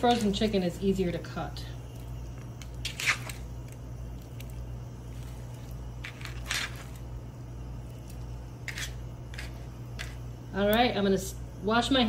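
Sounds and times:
steady low hum: 0.0s - 12.0s
soft wet squishes: 1.9s - 5.9s.

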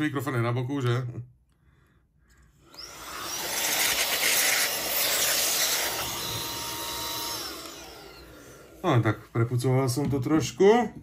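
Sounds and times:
electric air duster blowing: 2.8s - 8.8s.

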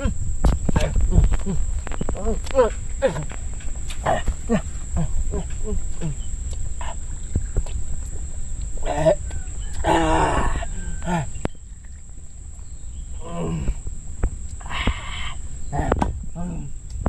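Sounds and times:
low rumble of wind: 0.0s - 17.0s
man grunting: 4.0s - 6.2s, 8.8s - 9.2s, 13.2s - 13.8s.

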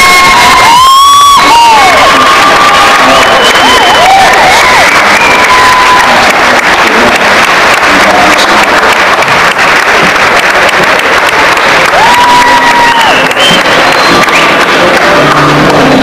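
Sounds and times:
long high shout: 0.0s - 6.2s, 11.9s - 13.3s
audience applauding and cheering: 0.0s - 16.0s.

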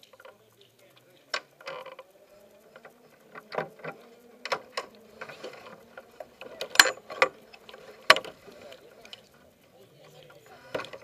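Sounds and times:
faint steady hum: 0.0s - 11.0s
helmet and gear knocking: 1.1s - 9.4s.

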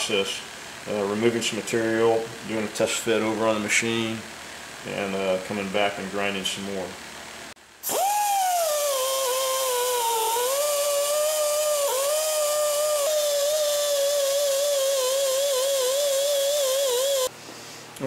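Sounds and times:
die grinder whining: 7.8s - 17.3s
grinding disc on metal: 8.0s - 17.3s.

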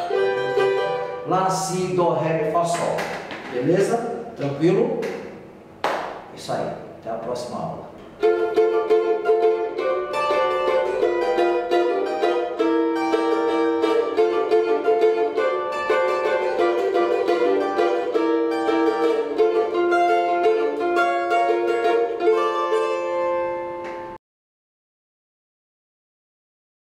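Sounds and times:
strummed small string instruments: 0.0s - 1.3s, 8.0s - 24.2s.

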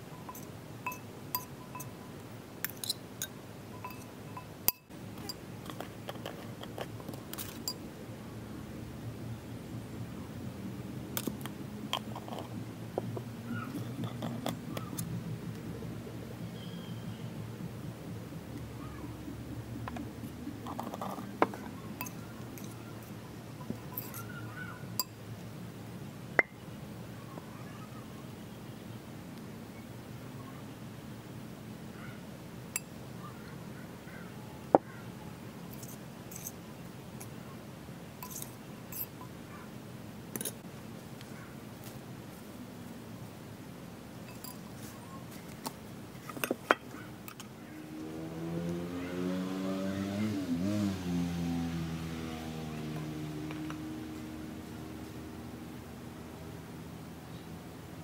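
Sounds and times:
low steady hum: 0.0s - 48.8s
metal spoon clinking glass bowl: 0.2s - 2.0s, 2.6s - 6.8s, 7.4s - 7.8s, 13.8s - 14.6s, 22.0s - 22.8s, 23.6s - 24.4s, 25.0s - 25.2s, 35.7s - 36.5s, 38.2s - 39.3s, 44.3s - 44.6s.

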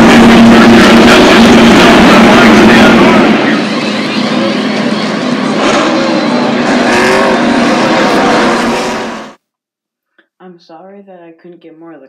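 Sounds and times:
race car engines roaring: 0.0s - 9.4s.

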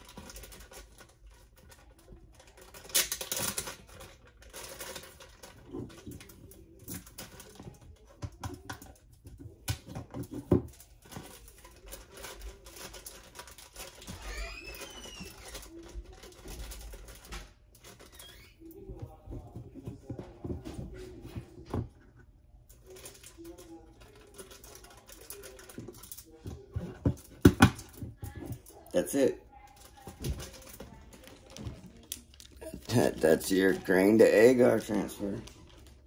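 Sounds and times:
plastic bag crinkling: 10.2s - 18.6s, 27.8s - 36.0s
high squeaks: 14.1s - 15.5s.

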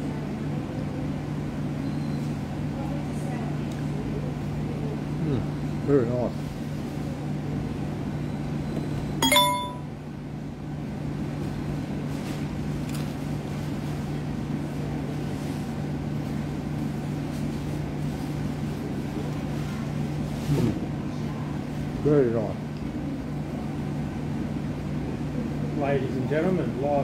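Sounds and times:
low mechanical hum: 0.0s - 27.0s
bright ringing clink: 9.2s - 9.9s.

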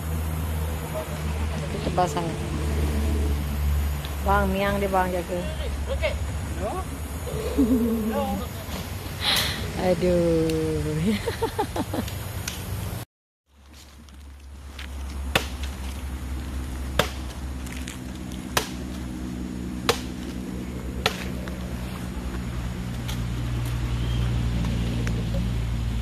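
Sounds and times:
blade chopping bamboo: 15.1s - 16.0s, 16.8s - 17.5s, 18.4s - 19.1s, 19.8s - 20.4s, 21.0s - 21.6s.

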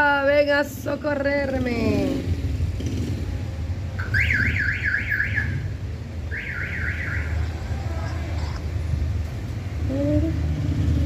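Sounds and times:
car alarm whooping: 6.3s - 7.4s.

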